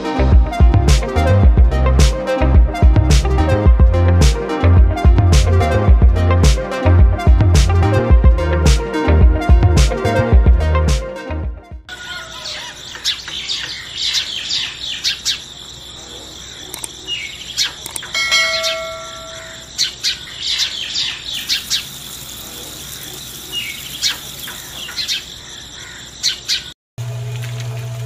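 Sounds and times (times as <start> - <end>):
birds chirping: 11.9 - 26.8.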